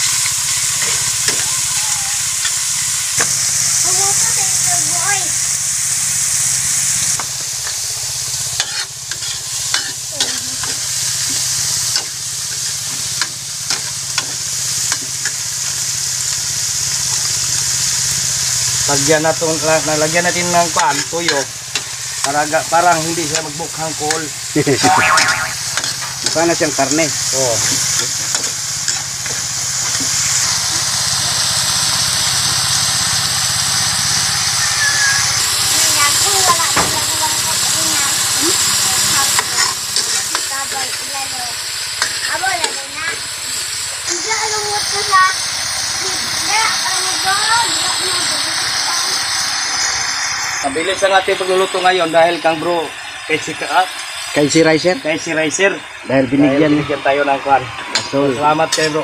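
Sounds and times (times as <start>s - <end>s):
food sizzling in oil: 0.0s - 59.0s
scraping stirring strokes in pan: 6.0s - 15.9s.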